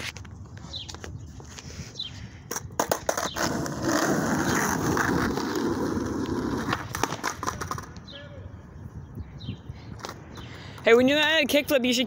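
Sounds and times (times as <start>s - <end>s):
skateboard wheels rolling on asphalt: 0.0s - 8.1s
skateboard clacks: 2.5s - 8.0s.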